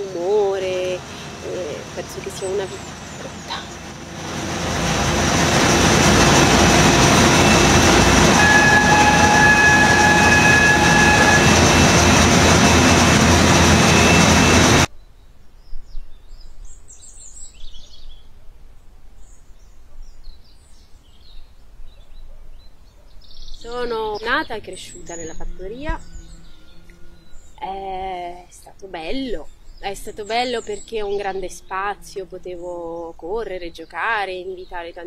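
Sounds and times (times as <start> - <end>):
conveyor machinery noise: 0.0 - 14.9
high machine whine: 0.8 - 14.9.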